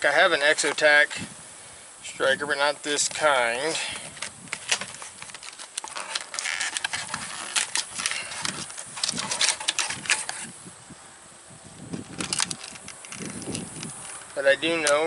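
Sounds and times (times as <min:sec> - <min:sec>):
plastic packaging crackling: 0:04.0 - 0:10.5, 0:11.9 - 0:15.0.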